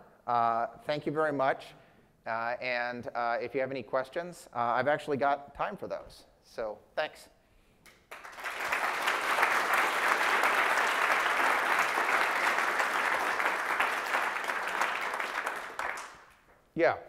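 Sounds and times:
audience applauding: 0:08.1 - 0:16.4.

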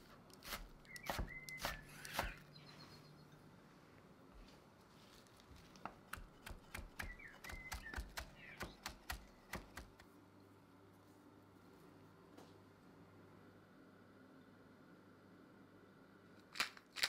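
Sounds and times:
knife chopping on wooden board: 0:00.4 - 0:02.4, 0:05.9 - 0:10.0.

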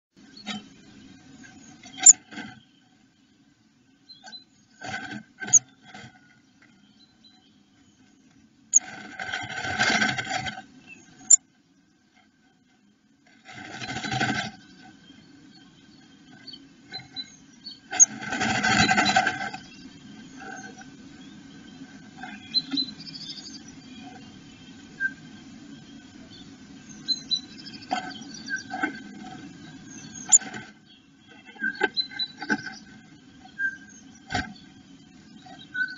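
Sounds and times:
bird scratching in nest: 0:08.7 - 0:10.6, 0:13.3 - 0:14.7, 0:17.9 - 0:19.6.

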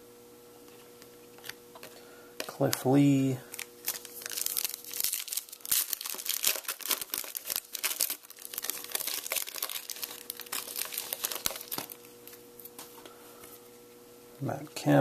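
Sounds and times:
foil wrapper crinkling: 0:02.4 - 0:12.8.

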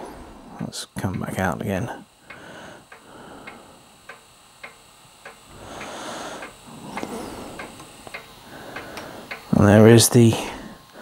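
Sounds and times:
steady ticking: 0:00.9 - 0:11.0.

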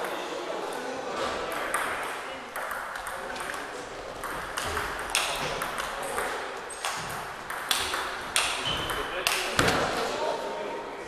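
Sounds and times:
table tennis ball clicking: 0:01.5 - 0:09.6.

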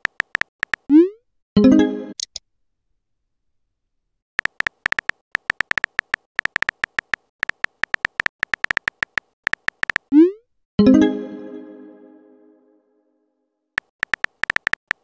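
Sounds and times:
phone keyboard typing clicks: 0:00.0 - 0:00.9, 0:04.4 - 0:10.1, 0:13.8 - 0:15.0.

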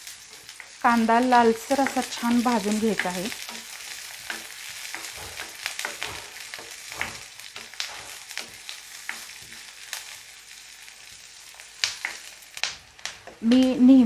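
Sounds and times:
onions sizzling in oil: 0:00.0 - 0:14.0
wooden spoon scraping pan: 0:03.5 - 0:09.7.

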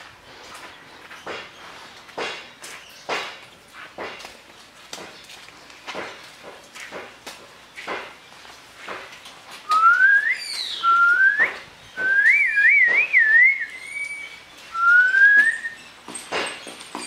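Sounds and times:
person whistling: 0:09.7 - 0:14.2, 0:14.8 - 0:15.8.

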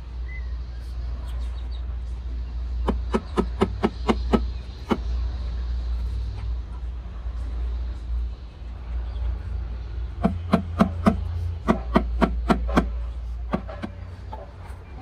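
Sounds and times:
hammer knocking cement planter: 0:02.8 - 0:05.0, 0:10.2 - 0:14.0.

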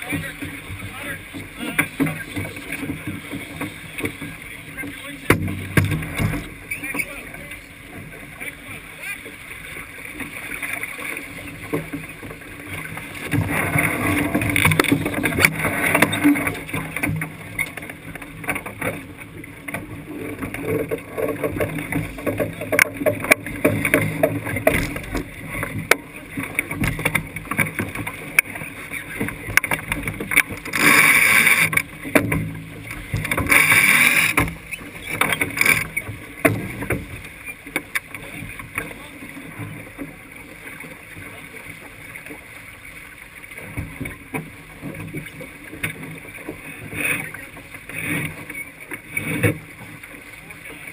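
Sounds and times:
water rushing along boat hull: 0:00.0 - 0:50.9.

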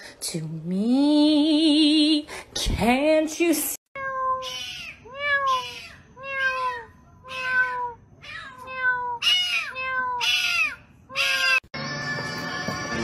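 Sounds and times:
cat meowing: 0:04.0 - 0:11.6.

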